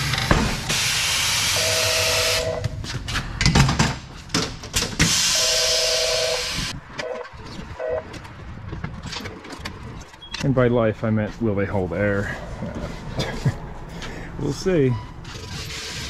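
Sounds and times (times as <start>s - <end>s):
compressed air hissing: 0.5s - 2.4s
knocks and clunks of a wheel: 8.1s - 10.2s.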